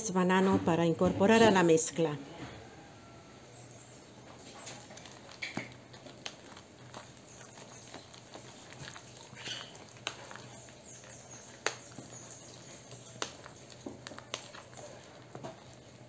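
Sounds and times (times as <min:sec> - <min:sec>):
whisk mashing bananas: 0:04.3 - 0:16.0.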